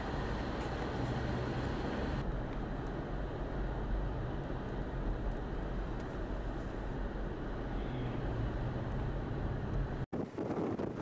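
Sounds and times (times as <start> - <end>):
vehicle traffic rumble: 0.0 - 11.0
blizzard wind rushing: 8.3 - 11.0.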